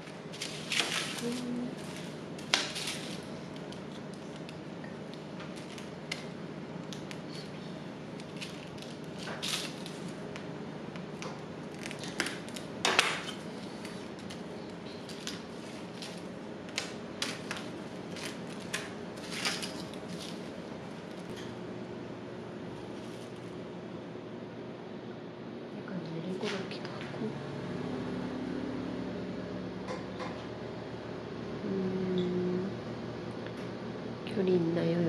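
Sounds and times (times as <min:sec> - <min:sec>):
knife crunching through pastry: 0:11.7 - 0:20.5.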